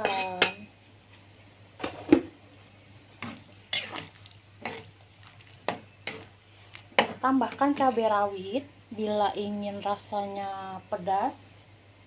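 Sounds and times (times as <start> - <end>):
metal ladle scraping a wok: 0.0 - 0.4, 3.2 - 4.9
soup boiling: 1.8 - 8.2.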